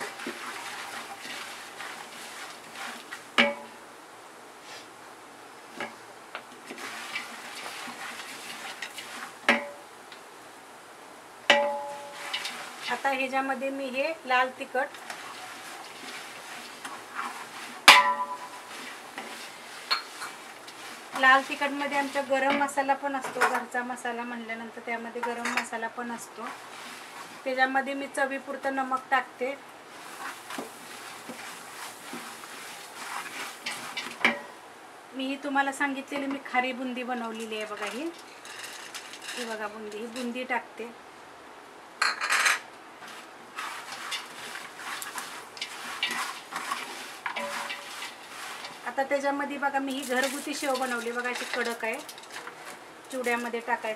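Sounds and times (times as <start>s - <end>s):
spatula stirring spices in oil: 0.0s - 3.8s, 5.7s - 9.8s, 11.5s - 24.0s, 25.1s - 34.6s, 35.2s - 40.5s, 43.0s - 53.9s
metallic clang of pot: 11.5s - 12.4s, 17.9s - 18.6s.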